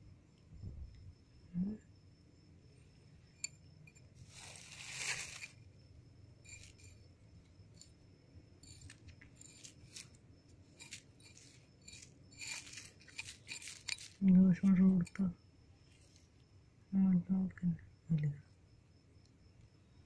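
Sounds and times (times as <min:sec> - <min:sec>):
fingers scratching sand and leaves: 0:04.2 - 0:05.6, 0:10.8 - 0:14.2.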